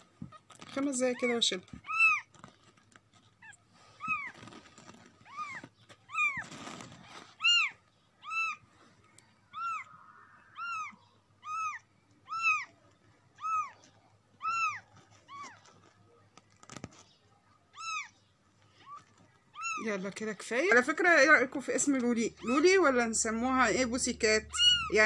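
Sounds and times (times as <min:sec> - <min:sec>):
kitten mewing: 0:05.2 - 0:08.6, 0:09.5 - 0:12.8, 0:13.4 - 0:13.8, 0:14.4 - 0:15.6, 0:24.5 - 0:25.0.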